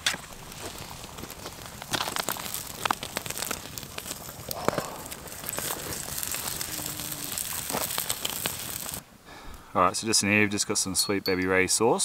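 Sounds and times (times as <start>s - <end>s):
campfire crackling: 0.0s - 10.5s
packaging crinkling: 0.2s - 9.0s.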